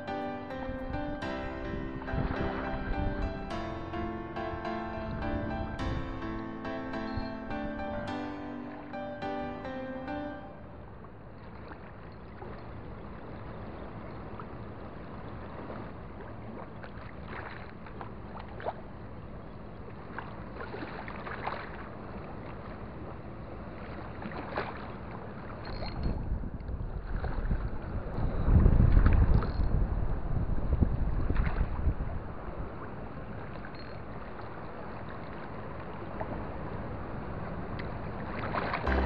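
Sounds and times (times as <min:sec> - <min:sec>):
wind buffeting microphone: 0:00.7 - 0:04.2, 0:26.0 - 0:33.4.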